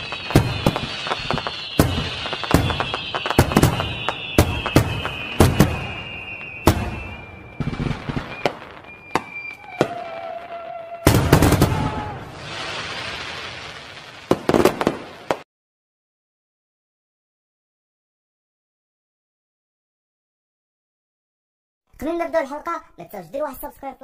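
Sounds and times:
firework whistle: 0:00.0 - 0:14.0
fireworks bangs with crackle: 0:00.0 - 0:15.5.

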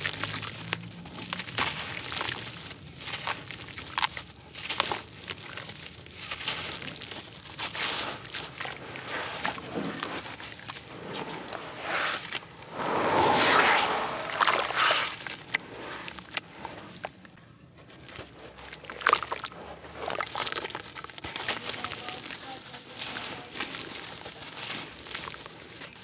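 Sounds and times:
water sloshing and squelching: 0:04.5 - 0:12.7, 0:14.1 - 0:26.0
dirt crumbling into water: 0:18.0 - 0:22.4.

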